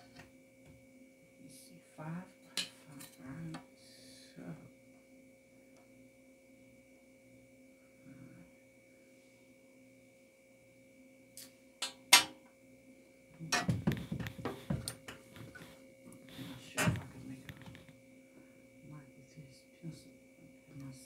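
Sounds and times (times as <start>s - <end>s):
faint electrical hum: 0.0s - 21.0s
objects knocking on glass table: 13.5s - 14.9s.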